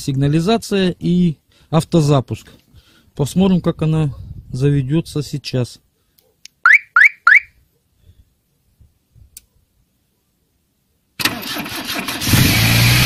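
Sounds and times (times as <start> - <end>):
car alarm chirps: 6.6 - 7.6
car engine cranking and idling: 11.2 - 13.0.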